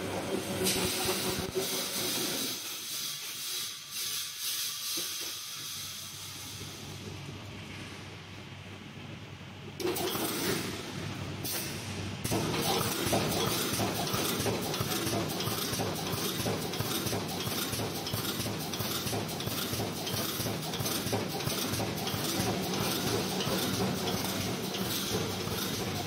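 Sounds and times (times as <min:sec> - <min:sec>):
fast metallic machine clatter: 0:12.3 - 0:26.0.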